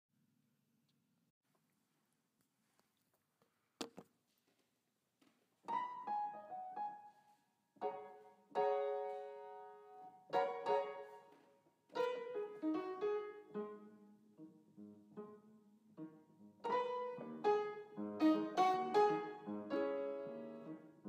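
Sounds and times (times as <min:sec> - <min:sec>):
slow solo piano: 0:05.7 - 0:21.0.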